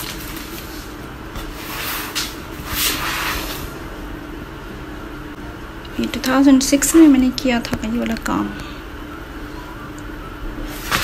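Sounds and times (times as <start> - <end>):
plastic sleeve pages crinkling: 0.0 - 1.5
faint steady hum: 0.0 - 11.0.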